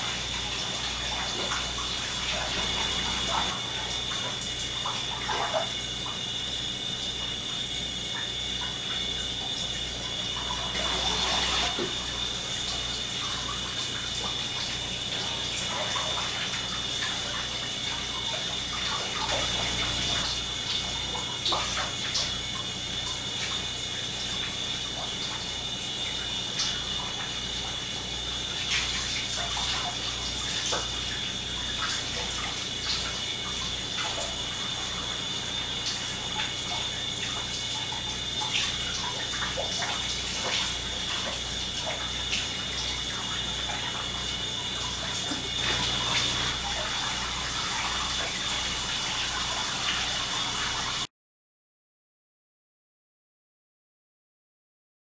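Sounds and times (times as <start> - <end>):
shower spray running: 0.0 - 51.1
water splashing: 38.1 - 50.5.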